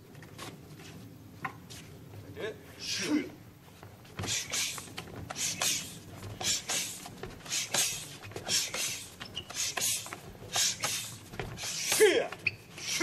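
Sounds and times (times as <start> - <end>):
light slaps: 4.2 - 12.4
sharp breaths: 4.2 - 13.0
sleeves swishing: 4.2 - 13.0.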